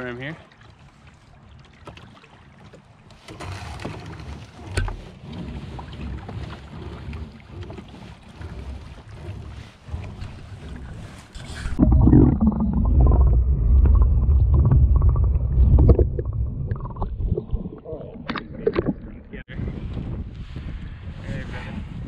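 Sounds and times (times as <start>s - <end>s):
water lapping at hull: 0.0s - 22.0s
rope hauled into rowboat: 3.2s - 11.8s
wind on microphone: 4.7s - 22.0s.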